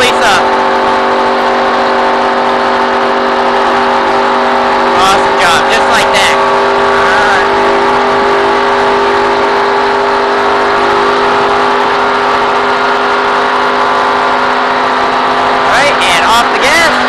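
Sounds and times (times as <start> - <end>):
race car engine at high revs: 0.0 - 17.0
wind and road noise: 0.0 - 17.0.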